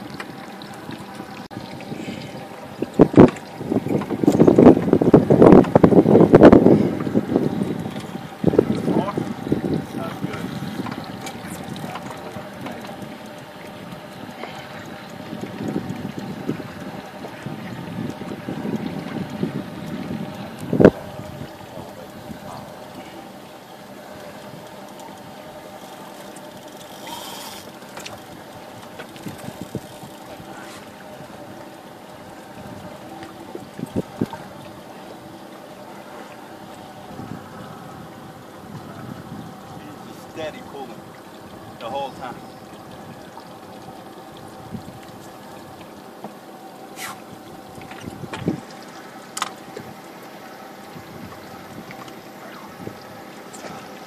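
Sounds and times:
water washing around hull: 0.0 - 54.0
wind noise on microphone: 0.9 - 13.2, 15.2 - 22.7, 29.2 - 30.2, 32.6 - 34.7, 37.1 - 40.1, 44.4 - 45.1, 47.0 - 48.7, 50.9 - 52.0, 52.6 - 53.7.

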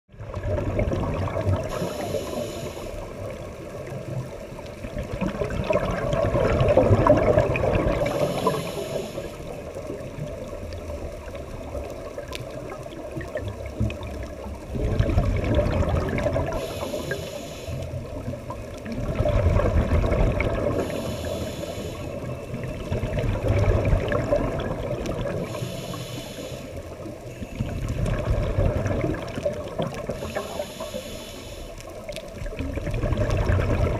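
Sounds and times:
exhaled bubbles rushing underwater: 0.1 - 33.9
regulator inhalation hiss: 1.7 - 3.2, 8.0 - 9.6, 16.5 - 18.0, 20.8 - 22.3, 25.4 - 27.0, 30.1 - 31.9.

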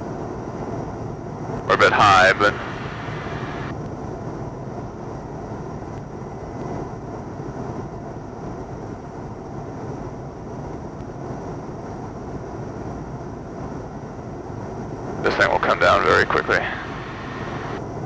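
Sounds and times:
airplane engine and propeller: 0.0 - 18.0
rushing air: 1.7 - 3.7, 15.4 - 17.8.

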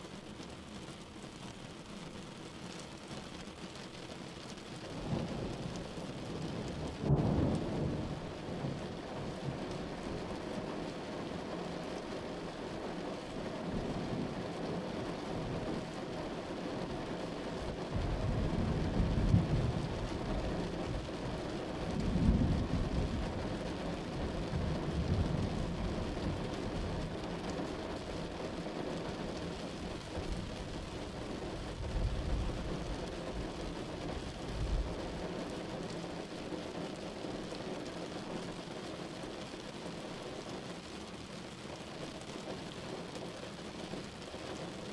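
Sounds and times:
steady rain: 0.0 - 44.9
thunder rumbling: 5.0 - 9.7, 17.8 - 27.2.

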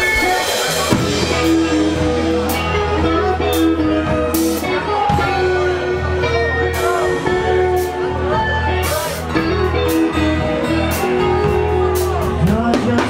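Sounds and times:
electric and acoustic guitars: 0.0 - 13.0
live band playing: 0.0 - 13.0
low bass: 0.0 - 13.0.

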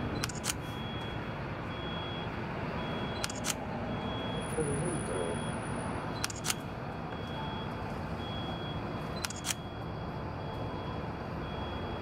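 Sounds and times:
camera shutter double click: 6.2 - 6.6, 9.2 - 9.6.

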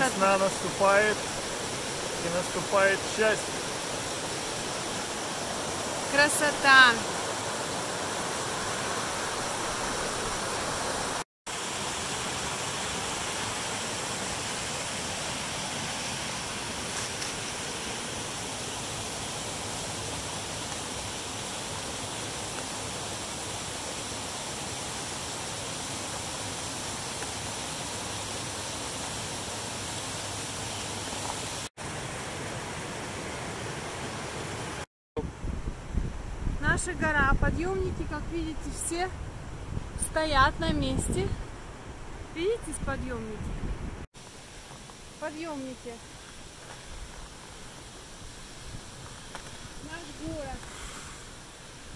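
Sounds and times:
creek rushing over rocks: 0.0 - 34.8, 44.1 - 51.9.

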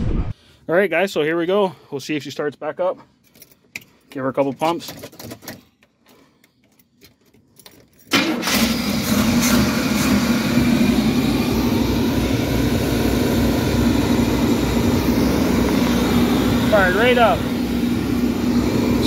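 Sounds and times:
engine starting and running: 8.1 - 19.0.

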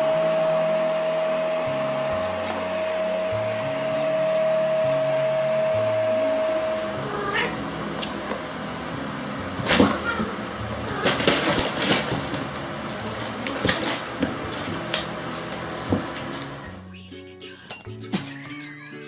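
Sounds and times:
cats meowing: 5.7 - 7.6, 9.8 - 11.3.

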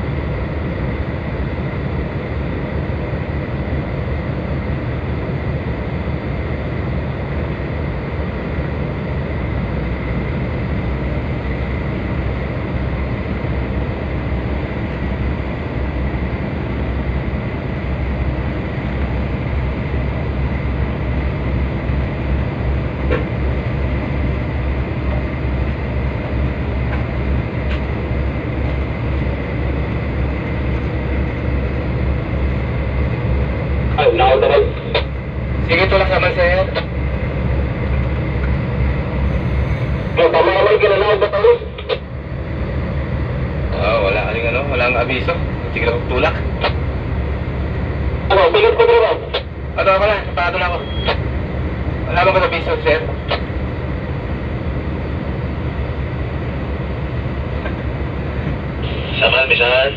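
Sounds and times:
diesel engines droning: 0.0 - 59.9
faint high whine: 48.3 - 51.4, 58.7 - 59.9.

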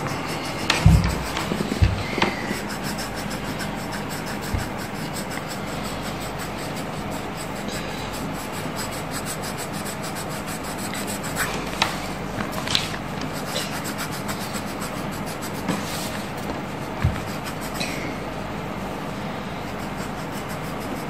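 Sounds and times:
pencil scribbling on paper: 0.0 - 18.0, 19.3 - 21.0
dull knock: 0.7 - 2.4.

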